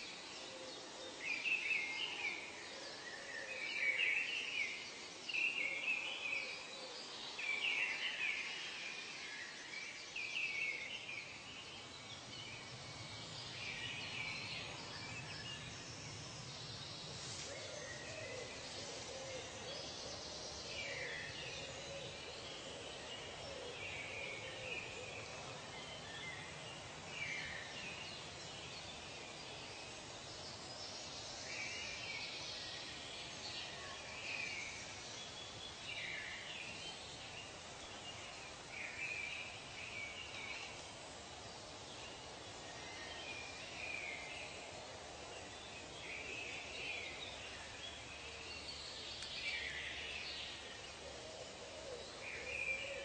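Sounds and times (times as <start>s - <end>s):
steady background hiss: 0.0s - 53.0s.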